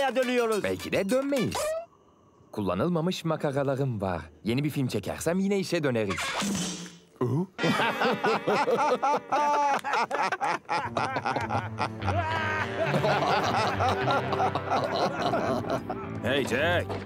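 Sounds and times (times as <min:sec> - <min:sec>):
cartoon characters laughing: 0:07.6 - 0:16.2.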